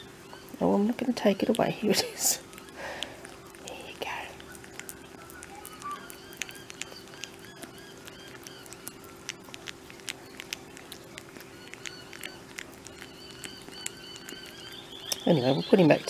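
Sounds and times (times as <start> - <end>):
steady low hum: 0.0 - 16.0
wet licking and chewing clicks: 0.0 - 16.0
faint high chirps: 2.4 - 9.5, 10.1 - 16.0.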